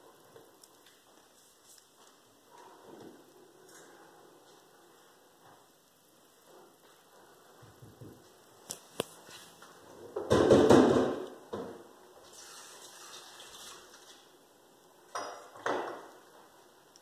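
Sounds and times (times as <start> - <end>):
rustling and knocking: 10.1 - 11.8.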